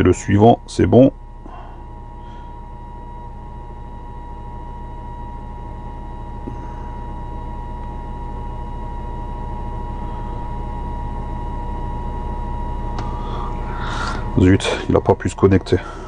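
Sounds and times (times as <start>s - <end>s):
car engine idling: 12.9s - 16.0s.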